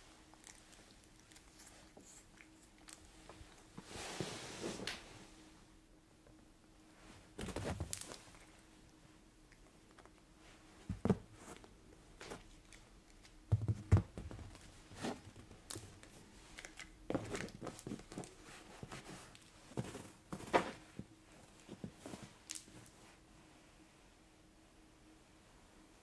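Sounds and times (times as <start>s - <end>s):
cat rustling on sofa: 3.0s - 5.5s, 6.9s - 8.8s, 13.8s - 23.2s.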